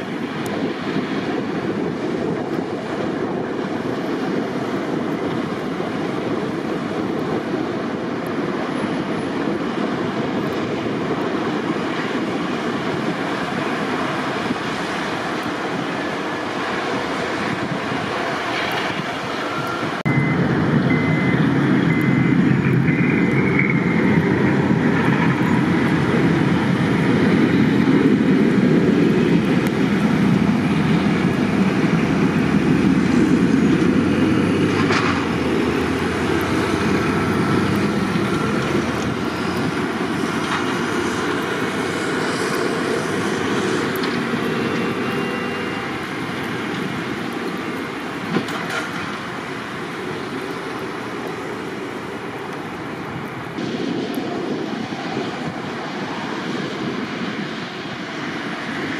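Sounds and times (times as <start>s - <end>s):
heavy machinery rumbling: 0.0s - 56.6s
short high beeps: 19.5s - 22.4s.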